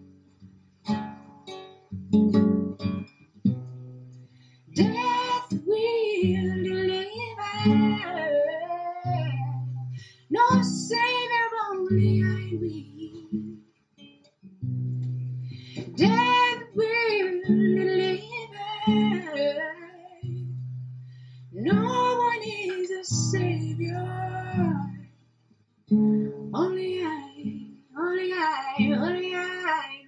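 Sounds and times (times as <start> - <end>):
strummed acoustic guitar: 0.0 - 25.3, 25.9 - 30.0
woman singing: 4.8 - 13.6, 15.8 - 20.7, 21.6 - 25.1, 26.5 - 30.0.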